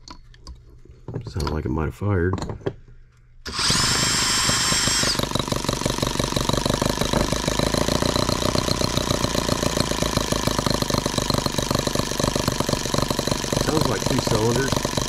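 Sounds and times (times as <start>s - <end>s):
drill whining: 3.5s - 15.0s
miniature engine running: 3.5s - 15.0s.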